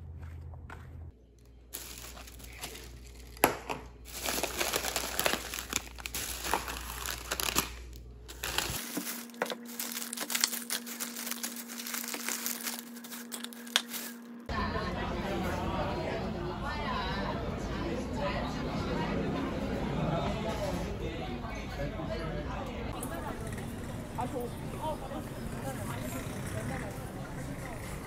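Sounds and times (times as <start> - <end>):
plastic bag rustling: 1.7 - 14.5.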